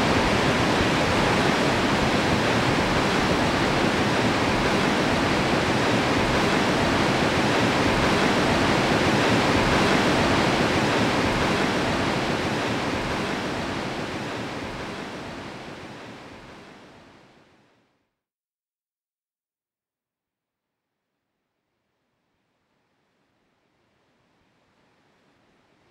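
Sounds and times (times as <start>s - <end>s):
waterfall rushing: 0.0s - 16.7s.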